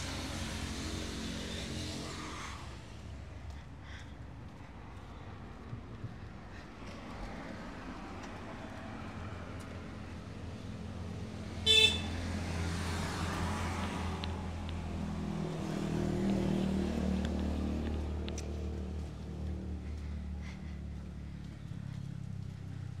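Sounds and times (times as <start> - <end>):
motor vehicle engine passing: 0.0 - 4.2, 4.8 - 23.0
vehicle horn beep: 11.6 - 12.2.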